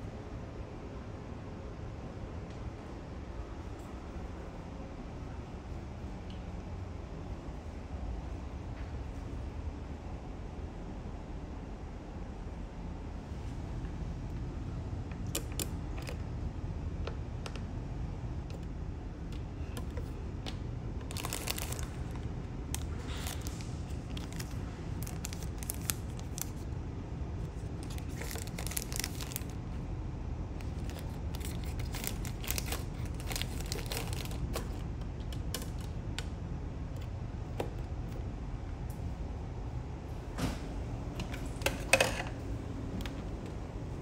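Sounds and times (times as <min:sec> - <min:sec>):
steady low hum: 0:00.0 - 0:44.0
plastic sachets crinkling: 0:21.0 - 0:26.7, 0:27.4 - 0:29.6, 0:30.6 - 0:36.0.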